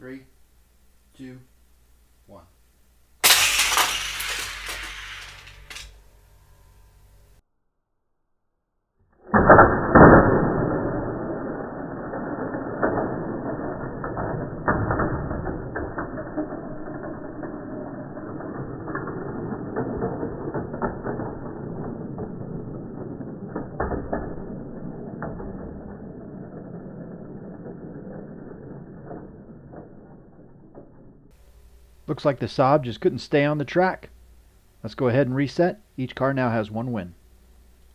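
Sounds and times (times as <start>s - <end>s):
toy cars clattering on plastic track: 3.2s - 6.0s, 12.0s - 30.7s.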